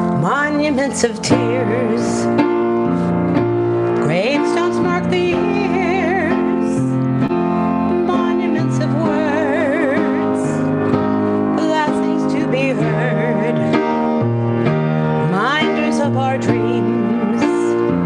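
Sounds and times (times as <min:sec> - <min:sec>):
woman singing with vibrato: 0:00.0 - 0:02.4, 0:04.0 - 0:07.0, 0:07.7 - 0:10.8, 0:11.6 - 0:14.0, 0:15.2 - 0:18.0
piano chords: 0:00.0 - 0:18.0.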